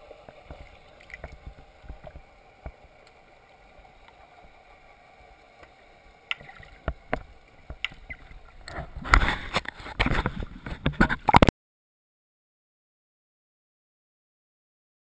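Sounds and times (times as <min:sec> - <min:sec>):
crackle of sharp knocks underwater: 0:00.2 - 0:03.3, 0:05.6 - 0:11.5.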